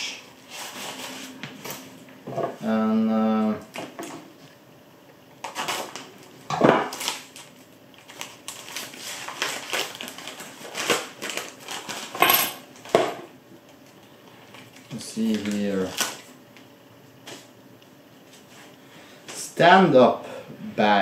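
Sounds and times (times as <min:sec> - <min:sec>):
plastic packaging crinkling: 0:06.9 - 0:12.2, 0:13.8 - 0:16.4.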